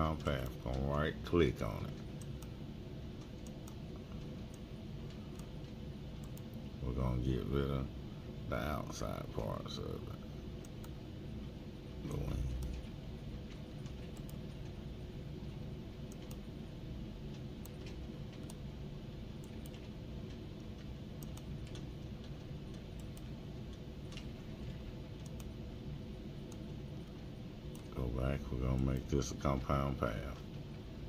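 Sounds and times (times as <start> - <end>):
low hum: 0.0 - 31.0
computer mouse clicks: 1.9 - 2.6, 3.2 - 6.6, 13.5 - 14.8, 16.0 - 16.5, 17.3 - 18.6, 19.4 - 24.3, 25.2 - 25.6, 26.4 - 28.0.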